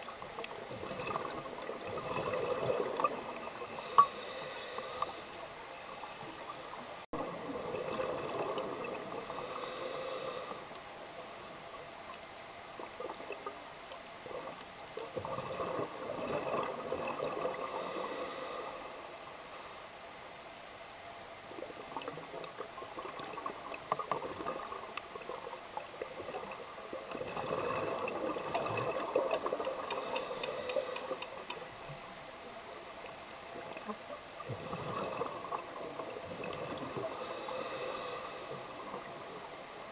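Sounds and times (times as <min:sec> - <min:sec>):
exhaled bubbles streaming: 0:00.0 - 0:03.9, 0:07.2 - 0:09.3, 0:14.2 - 0:17.8, 0:21.5 - 0:30.2, 0:33.5 - 0:37.3
regulator inhalation hiss: 0:03.8 - 0:06.4, 0:09.2 - 0:11.7, 0:17.6 - 0:20.0, 0:29.8 - 0:32.1, 0:37.0 - 0:39.0.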